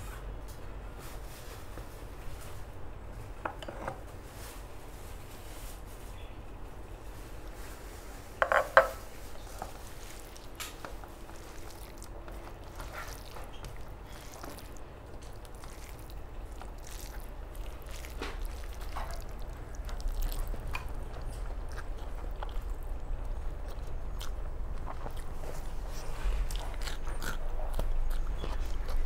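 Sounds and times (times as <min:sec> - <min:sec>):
low steady hum: 0:00.0 - 0:29.0
taps and clicks on a plate: 0:08.4 - 0:09.0
dishes clinking: 0:08.4 - 0:09.1.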